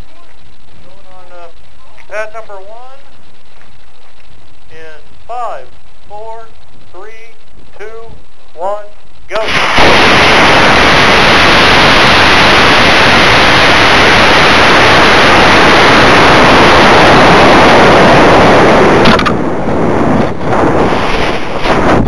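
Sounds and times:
gusty wind noise: 0:00.0 - 0:22.0
rush of air over microphone: 0:09.2 - 0:22.0.

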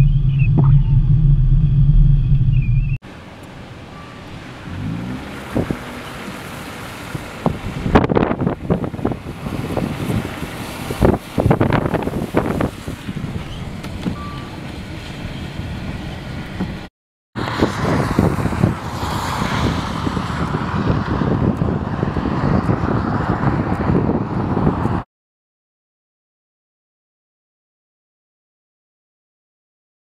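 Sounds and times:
wind buffeting microphone: 0:00.0 - 0:03.0, 0:05.3 - 0:25.0
car passing by: 0:03.3 - 0:13.2, 0:17.4 - 0:25.0.

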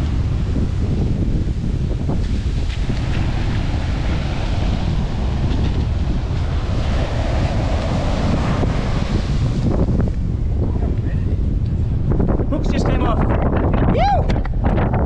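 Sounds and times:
surf washing up beach: 0:00.0 - 0:13.4
wind buffeting microphone: 0:00.0 - 0:15.0.

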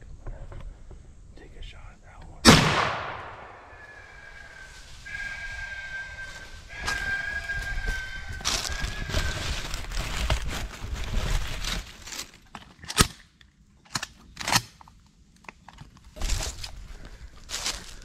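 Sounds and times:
shotgun blast: 0:02.4 - 0:03.8
dry leaves crunching: 0:04.2 - 0:12.5, 0:16.0 - 0:18.0.

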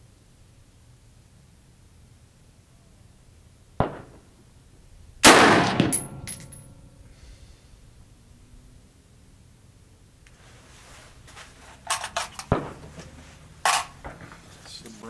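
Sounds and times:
gunshots: 0:03.8 - 0:04.2, 0:05.2 - 0:06.2, 0:12.4 - 0:12.8
metallic clinking and ringing: 0:05.8 - 0:07.0.

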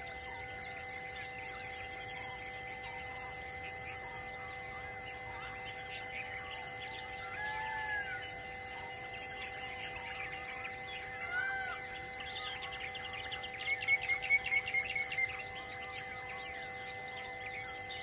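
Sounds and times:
drone of steady tones: 0:00.0 - 0:18.0
high insect buzz: 0:00.0 - 0:18.0
birds chirping and calling: 0:05.3 - 0:17.3.

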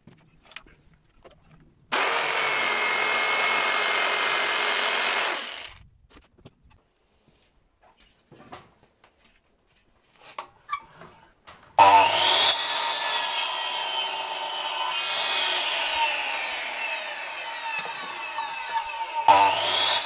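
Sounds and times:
mitre saw cutting wood: 0:01.9 - 0:05.8, 0:11.8 - 0:20.0.

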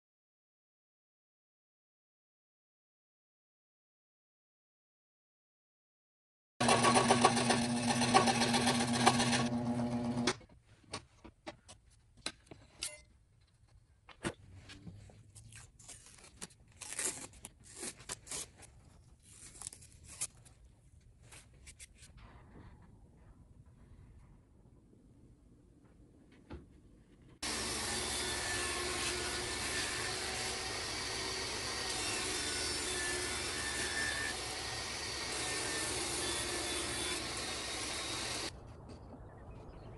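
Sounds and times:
scroll saw buzzing: 0:06.6 - 0:10.4, 0:27.4 - 0:38.5.

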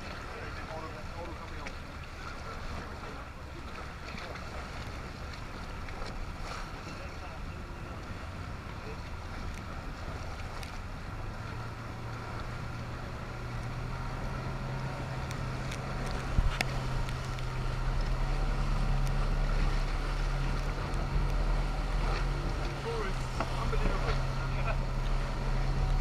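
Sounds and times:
motorboat engine humming: 0:00.0 - 0:26.0
wake water splashing: 0:00.0 - 0:26.0
wind on microphone: 0:15.0 - 0:18.5.

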